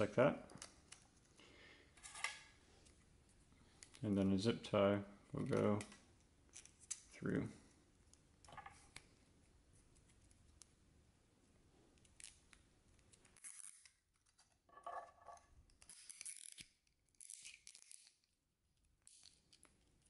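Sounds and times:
zip tie ratcheting: 0:13.2 - 0:14.0, 0:15.8 - 0:18.2.

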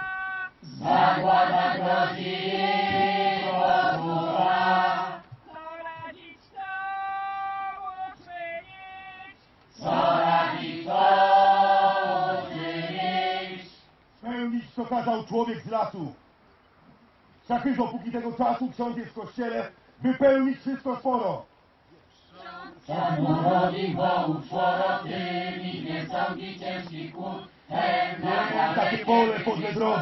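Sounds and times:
group of voices answering: 0:00.0 - 0:01.0.

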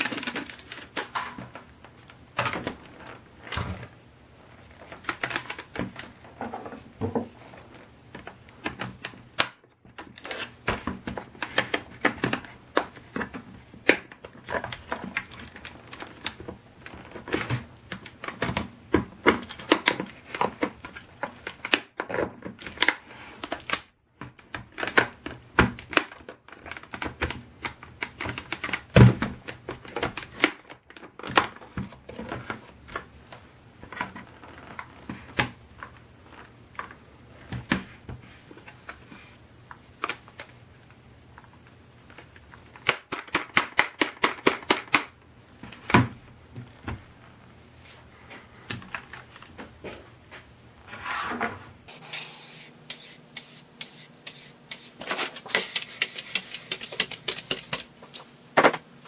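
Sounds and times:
plastic parts clicking and knocking: 0:00.0 - 0:03.9, 0:04.8 - 0:47.0.

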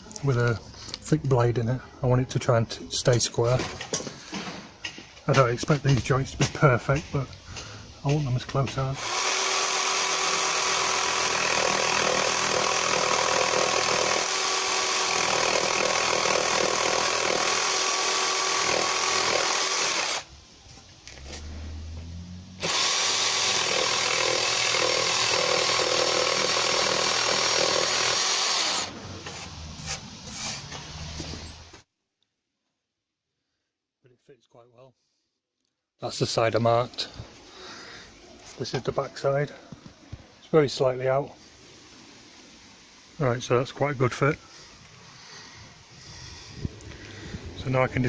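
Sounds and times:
jigsaw cutting timber: 0:09.0 - 0:20.3, 0:22.6 - 0:28.9.

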